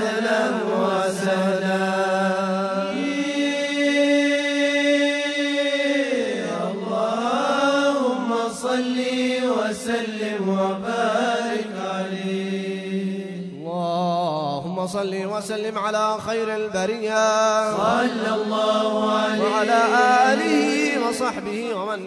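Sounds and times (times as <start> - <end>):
male voices chanting: 17.6 - 22.0.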